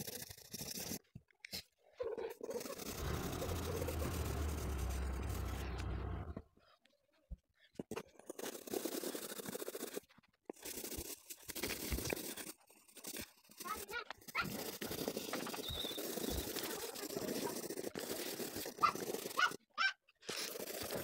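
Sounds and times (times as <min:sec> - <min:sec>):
pencil scratching on paper: 0:00.0 - 0:01.1, 0:02.3 - 0:06.4, 0:07.9 - 0:21.0
low rumble: 0:02.9 - 0:06.4.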